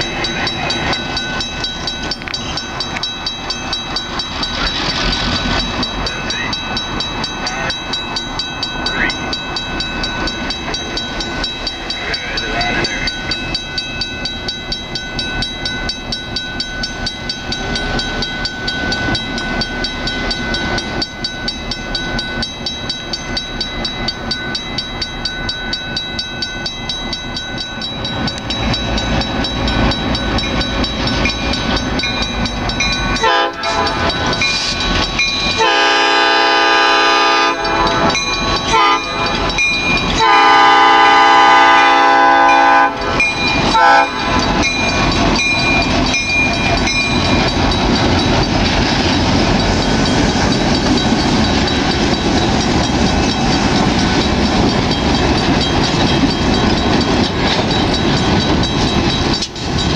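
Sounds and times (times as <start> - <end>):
diesel locomotives running: 0.0 - 59.9
locomotive horn: 33.2 - 34.2, 35.6 - 39.3, 40.2 - 44.4.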